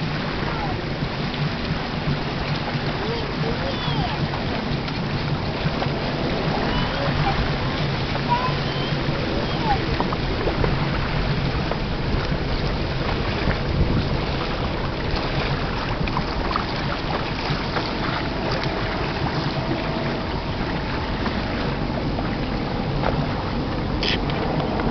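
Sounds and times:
boat engine drone: 0:00.0 - 0:24.9
water rushing past hull: 0:00.0 - 0:24.9
wind buffeting microphone: 0:00.0 - 0:24.9.

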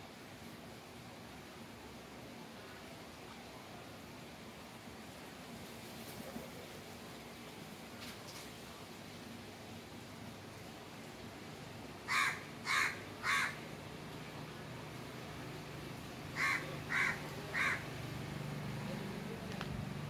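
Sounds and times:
bird cawing: 0:12.0 - 0:13.7, 0:16.4 - 0:18.0.

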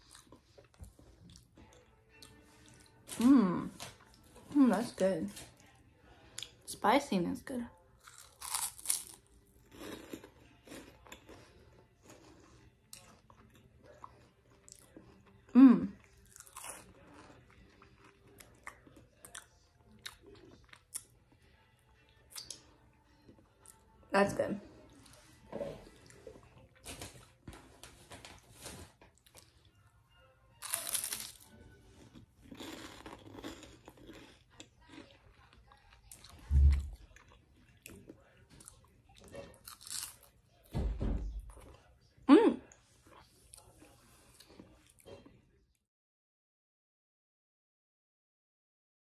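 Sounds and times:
chewing with soft crunches: 0:00.0 - 0:04.6, 0:08.0 - 0:24.0, 0:24.6 - 0:29.9, 0:30.6 - 0:40.7, 0:41.5 - 0:45.6
crunchy snack bite: 0:08.0 - 0:11.4, 0:30.6 - 0:35.0, 0:39.6 - 0:40.3.

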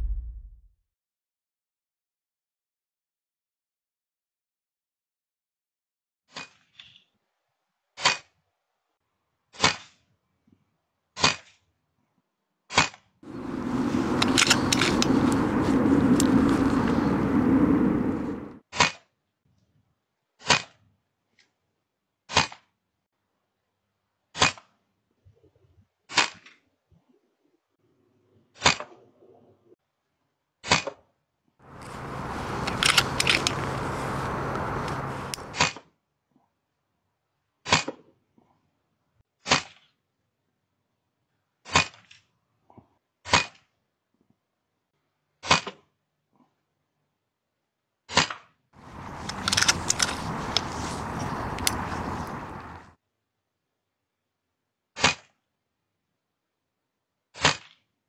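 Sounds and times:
loud rushing noise: 0:13.3 - 0:18.6
air rifle cracks: 0:13.4 - 0:15.5, 0:31.8 - 0:35.6, 0:48.8 - 0:52.5.

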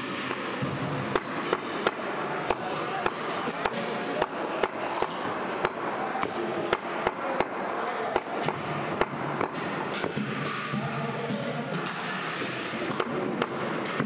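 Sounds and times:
cleaver chopping meat and bone: 0:08.1 - 0:10.8.

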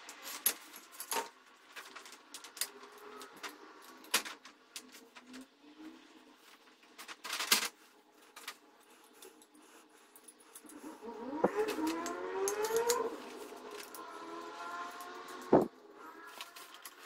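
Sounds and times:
metal and plastic parts clicking: 0:11.5 - 0:14.1, 0:16.3 - 0:17.0.

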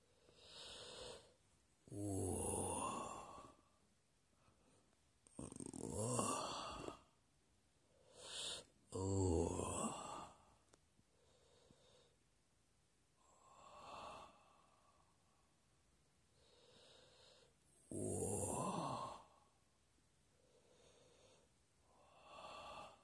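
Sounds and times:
man breathing heavily: 0:00.0 - 0:01.4, 0:07.9 - 0:08.8.

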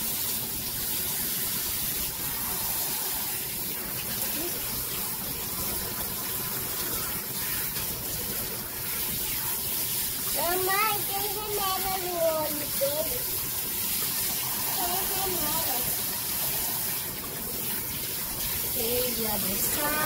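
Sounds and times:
faucet sprayer running: 0:00.0 - 0:20.0
water splashing into sink: 0:00.0 - 0:20.0.

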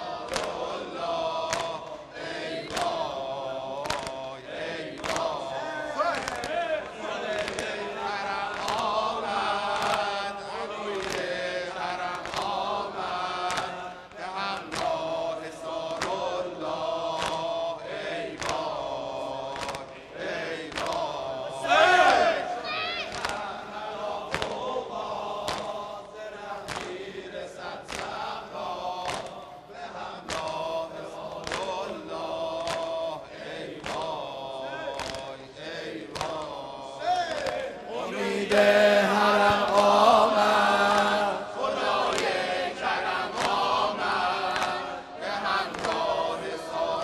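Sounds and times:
men chanting in unison: 0:00.0 - 0:47.0
chest-beating slaps: 0:00.2 - 0:02.0, 0:02.6 - 0:04.3, 0:04.9 - 0:05.4, 0:06.1 - 0:07.8, 0:09.7 - 0:10.2, 0:10.9 - 0:20.0, 0:20.6 - 0:21.2, 0:23.0 - 0:25.9, 0:26.6 - 0:27.1, 0:27.8 - 0:29.4, 0:30.2 - 0:35.4, 0:36.0 - 0:36.7, 0:37.3 - 0:37.7, 0:43.2 - 0:44.9, 0:45.5 - 0:46.2
unison chest-beating: 0:23.1 - 0:37.7.

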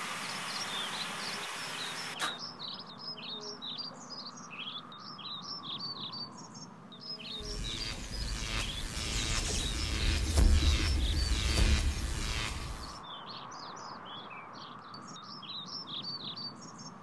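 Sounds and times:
birds chirping: 0:00.0 - 0:17.0
noisy whoosh with low rumble: 0:07.4 - 0:13.0.

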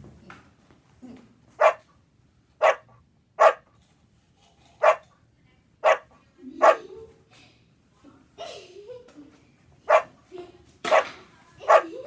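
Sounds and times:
dog barking: 0:01.6 - 0:01.8, 0:02.6 - 0:03.7, 0:04.8 - 0:05.1, 0:05.8 - 0:06.8, 0:09.9 - 0:10.1, 0:10.9 - 0:12.0.

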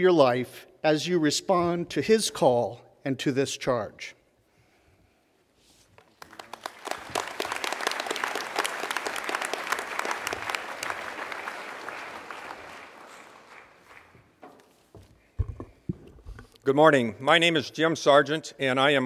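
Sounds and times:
audience applause: 0:06.2 - 0:14.3.

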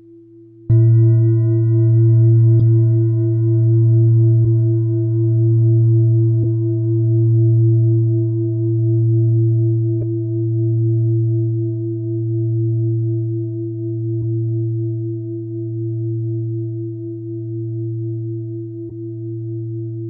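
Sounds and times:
singing bowl ringing: 0:00.7 - 0:07.1.

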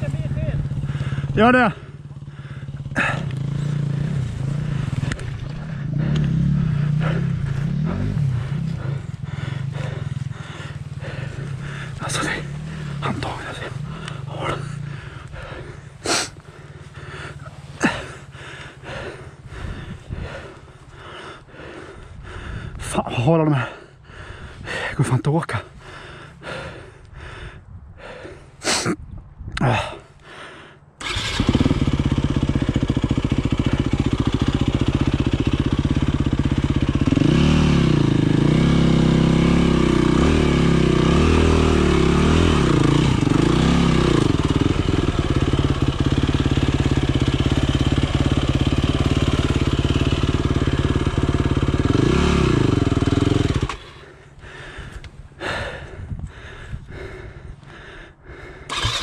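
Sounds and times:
dirt bike engine revving: 0:00.0 - 0:22.0, 0:31.0 - 0:56.0, 0:58.7 - 0:59.0.

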